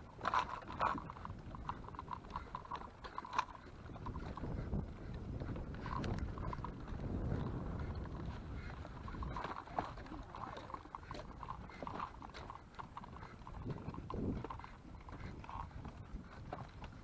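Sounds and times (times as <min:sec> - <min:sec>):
stroller rolling over planks: 0:00.0 - 0:17.0
dog claws clicking on wood: 0:00.2 - 0:06.9.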